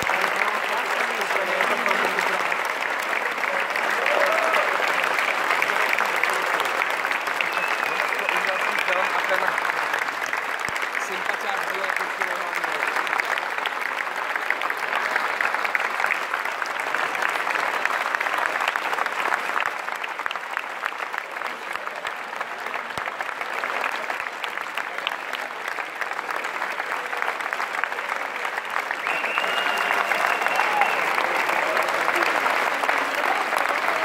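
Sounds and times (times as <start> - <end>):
audience clapping: 0.0 - 34.0.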